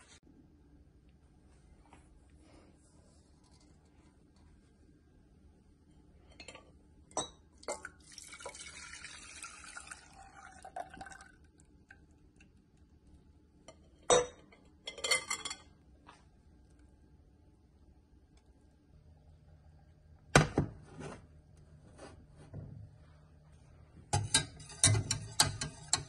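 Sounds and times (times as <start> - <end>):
liquid pouring into a pot: 7.6 - 12.6
kitchenware clinking: 13.7 - 15.8, 24.1 - 26.0.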